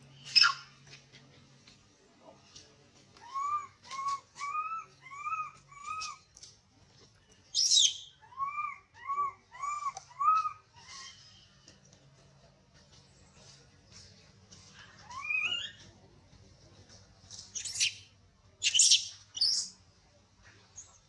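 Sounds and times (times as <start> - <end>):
animal whistled calls: 3.3 - 6.2, 7.6 - 11.2, 15.1 - 15.8.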